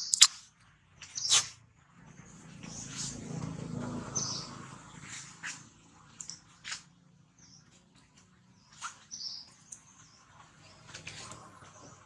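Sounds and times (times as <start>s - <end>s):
high-pitched animal chirps: 0.0s - 0.4s.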